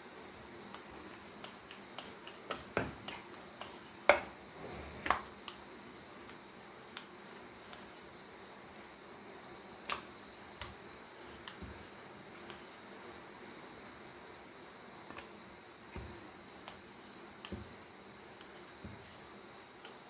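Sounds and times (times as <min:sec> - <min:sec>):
rolling pin knocking on board: 0:02.7 - 0:03.1, 0:04.1 - 0:04.4.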